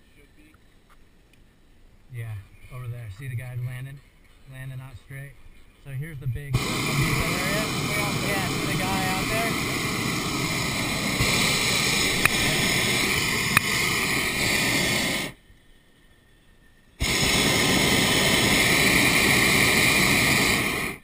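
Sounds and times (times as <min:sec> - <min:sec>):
propane burner roaring: 0:06.5 - 0:15.4, 0:17.0 - 0:21.0
sharp clicks: 0:11.1 - 0:13.8.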